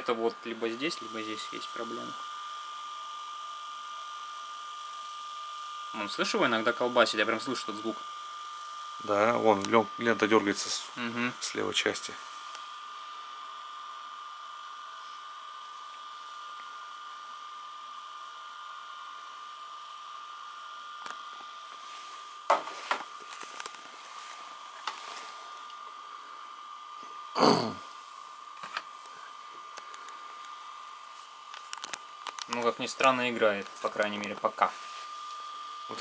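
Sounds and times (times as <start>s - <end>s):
tape deck whirring with high whine: 0.0s - 36.0s.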